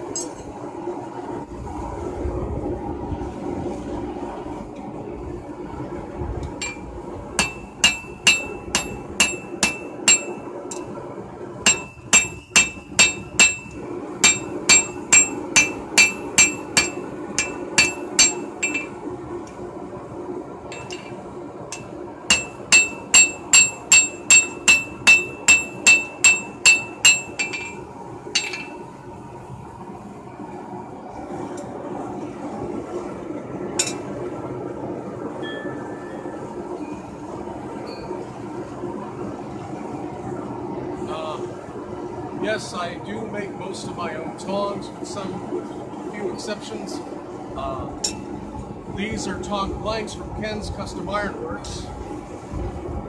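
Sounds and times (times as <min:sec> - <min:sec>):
hammer striking steel on anvil: 0:07.4 - 0:10.9, 0:11.7 - 0:19.0, 0:20.8 - 0:27.8, 0:28.4 - 0:28.8.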